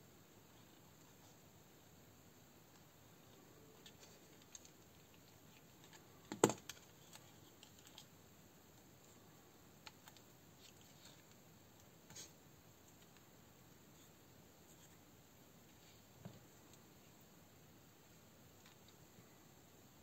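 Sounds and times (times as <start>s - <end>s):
small clicks and taps on plastic: 5.8s - 8.1s.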